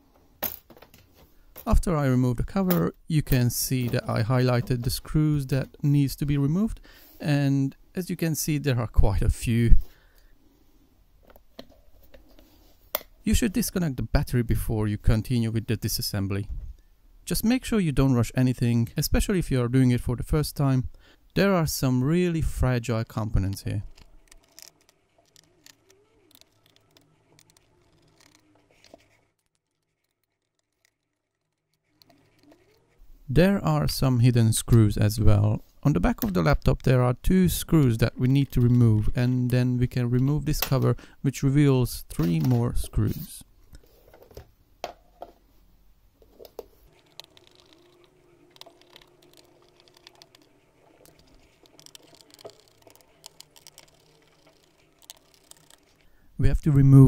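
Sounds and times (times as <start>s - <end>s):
screwdriver clicking on screws: 23.9s - 28.4s, 47.0s - 56.0s.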